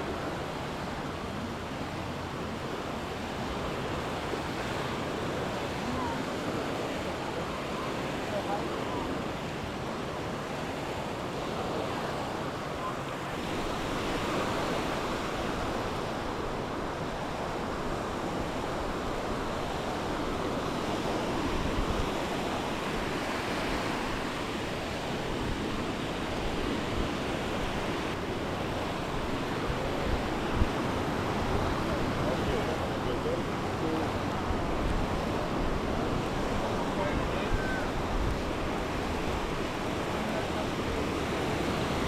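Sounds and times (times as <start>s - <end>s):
waves washing up a beach: 0.0s - 42.0s
wind gusting on microphone: 0.0s - 42.0s.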